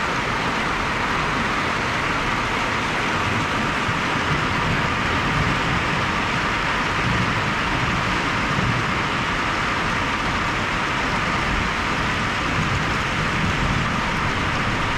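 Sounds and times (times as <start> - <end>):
steady rain falling: 0.0 - 14.9.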